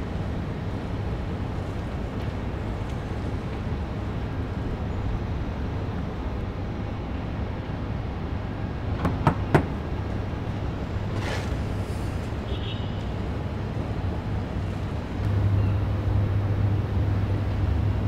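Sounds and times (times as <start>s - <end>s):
low outdoor rumble: 13.1s - 18.0s.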